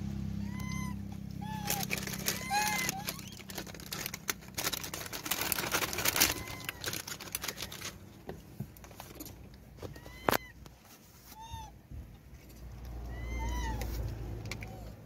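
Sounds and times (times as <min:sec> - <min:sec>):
monkeys scrabbling on car glass: 0:01.4 - 0:10.6.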